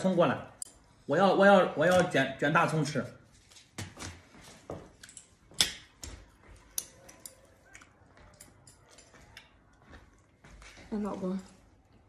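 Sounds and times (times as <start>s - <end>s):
chopsticks and dishes clicking: 5.0s - 9.6s.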